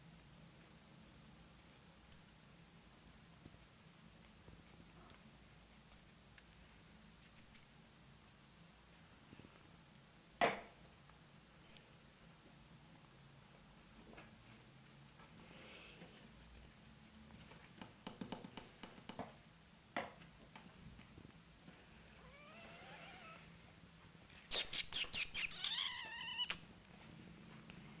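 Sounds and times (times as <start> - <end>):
kittens mewing: 22.2 - 23.5, 24.5 - 26.6.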